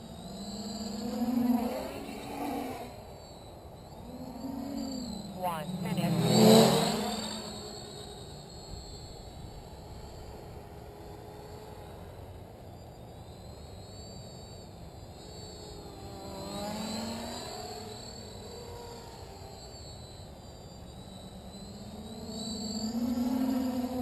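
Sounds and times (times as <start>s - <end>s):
quadcopter buzzing whine: 0.0s - 24.0s.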